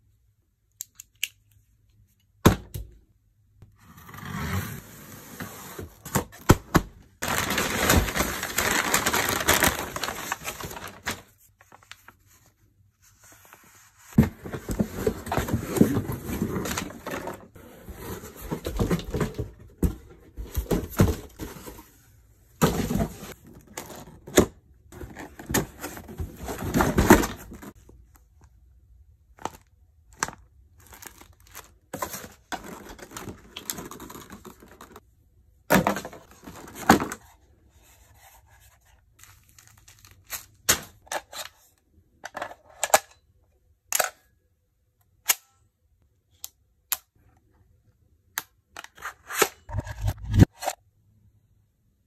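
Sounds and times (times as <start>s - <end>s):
cardboard packaging rustling: 7.1s - 12.3s, 13.3s - 22.0s, 25.0s - 27.8s, 30.2s - 35.0s.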